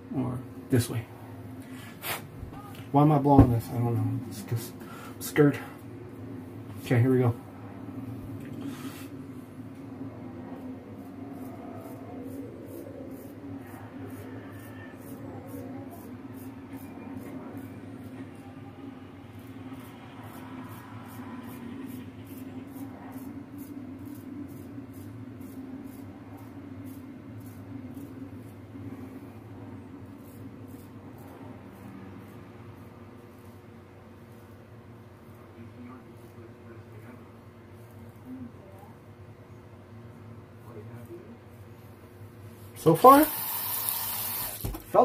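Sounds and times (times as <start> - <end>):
steady low hum: 0.0 - 45.0
razor scraping stubble: 10.5 - 18.5, 19.2 - 38.6.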